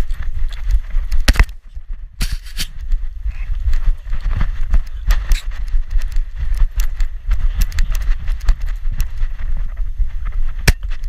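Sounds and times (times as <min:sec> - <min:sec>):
jittery low rumble: 0:00.0 - 0:11.0.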